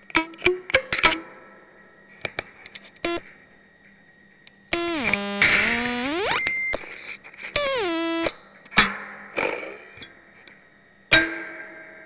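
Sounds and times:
buzzy synthesizer tone gliding: 4.8s - 6.8s, 7.6s - 8.3s
second synthesizer tone sliding down: 4.8s - 6.8s, 7.6s - 8.3s.

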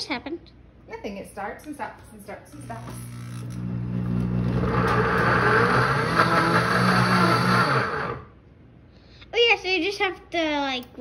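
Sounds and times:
blender motor chopping apple: 2.5s - 8.3s.

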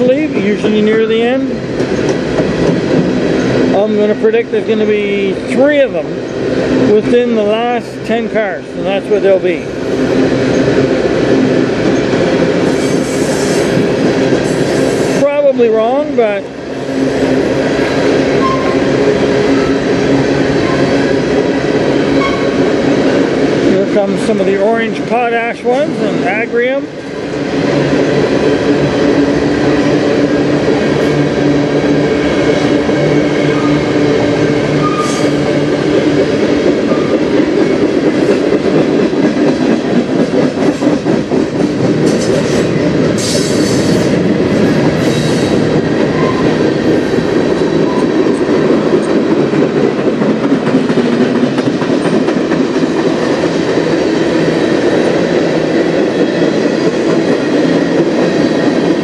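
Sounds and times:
train wheels rumbling on rails: 0.0s - 59.0s
wheels clicking over rail joints: 34.4s - 59.0s.

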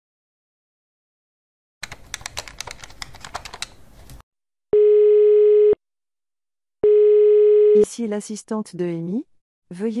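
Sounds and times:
telephone ringing tone: 4.8s - 5.8s, 6.8s - 7.9s.

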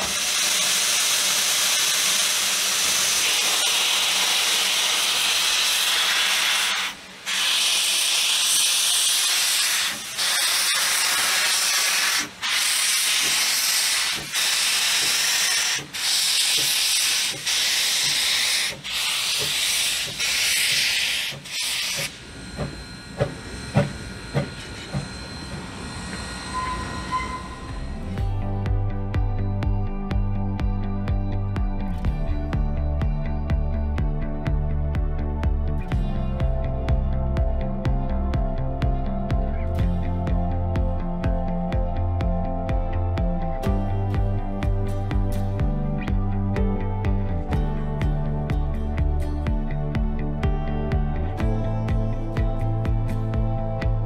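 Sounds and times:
steam locomotive hissing: 0.0s - 28.2s.

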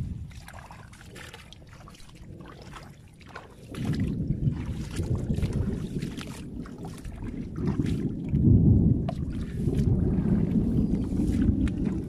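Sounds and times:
water splashing from wading: 0.0s - 12.0s
low rumble: 3.9s - 12.0s.

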